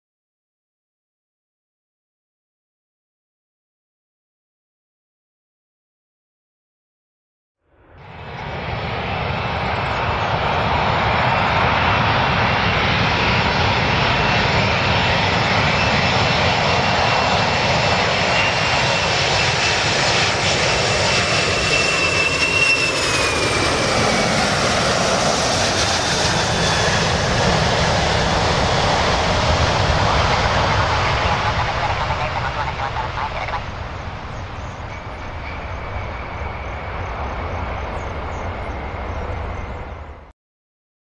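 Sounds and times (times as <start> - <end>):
jet engines with high whine: 7.7 - 40.3.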